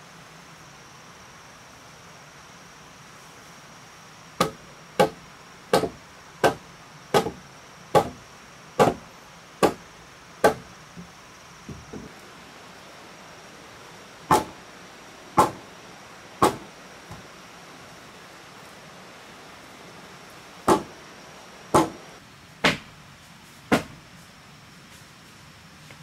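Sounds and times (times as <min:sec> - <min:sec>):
tool chopping wooden beam: 0:04.4 - 0:08.2, 0:08.8 - 0:09.0, 0:09.6 - 0:09.8, 0:10.4 - 0:10.7, 0:14.3 - 0:14.6, 0:15.4 - 0:15.6, 0:16.4 - 0:17.2, 0:20.7 - 0:20.9, 0:21.7 - 0:22.0, 0:23.7 - 0:24.0.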